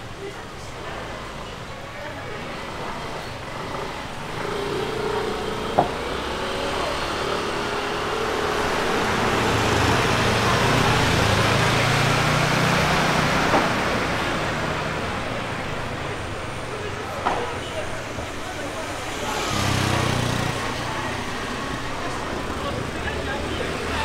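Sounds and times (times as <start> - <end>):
vehicle passing by: 3.5 - 15.7, 18.7 - 24.0.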